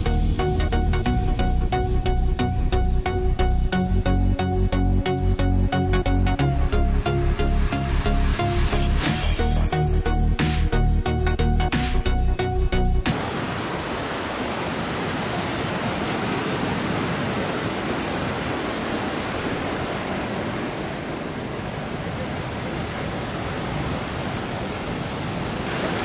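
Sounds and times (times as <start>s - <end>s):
waves breaking: 13.1s - 26.0s.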